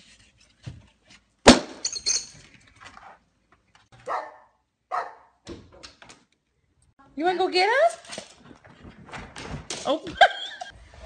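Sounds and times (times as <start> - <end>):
dog barking: 4.0 - 5.4.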